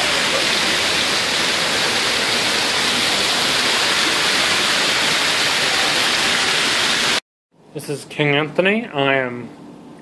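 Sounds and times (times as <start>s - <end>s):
water cascading down stone wall: 0.0s - 7.2s.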